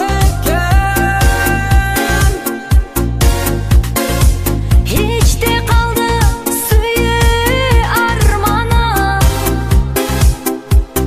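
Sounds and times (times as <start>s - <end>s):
dance-pop song with kick drum beat: 0.0s - 11.0s.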